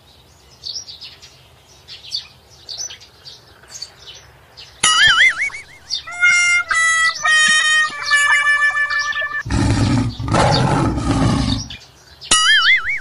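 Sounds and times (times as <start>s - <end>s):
birds chirping: 0.6s - 13.0s
wobbling cartoon sound effect: 4.8s - 10.6s
steady electronic tone: 6.1s - 9.5s.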